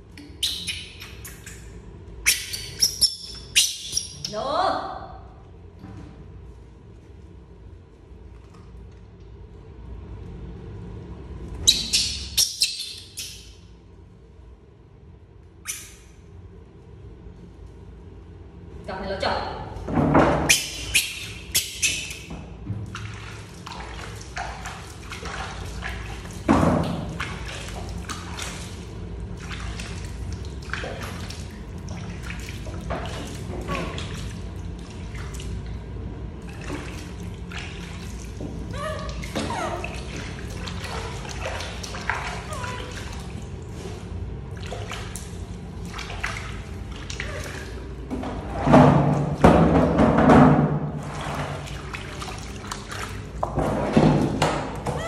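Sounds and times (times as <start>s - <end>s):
water splashing and dripping: 0.0s - 4.4s, 20.4s - 55.0s.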